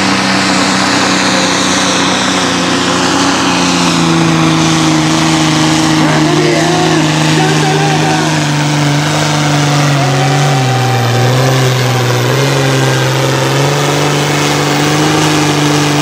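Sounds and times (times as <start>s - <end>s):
tractor engine under load: 0.0s - 16.0s.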